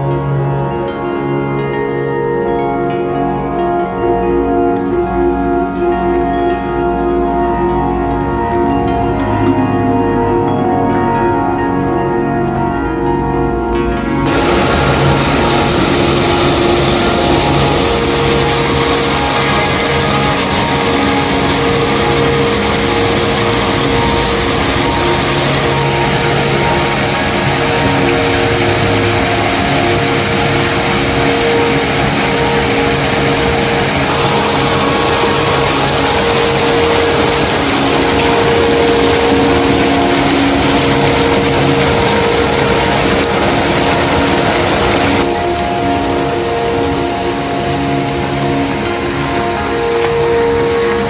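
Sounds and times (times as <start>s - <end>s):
waterfall splashing into pool: 14.3s - 51.0s.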